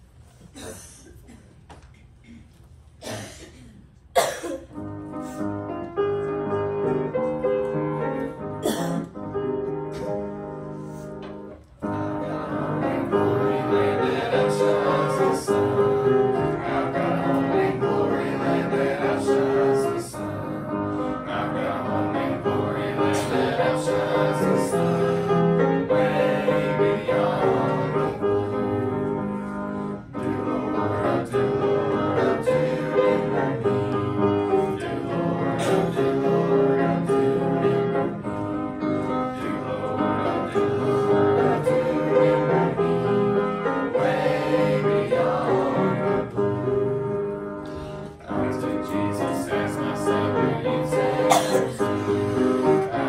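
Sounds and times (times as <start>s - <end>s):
hymn piano: 3.8s - 53.0s
people singing: 11.8s - 53.0s.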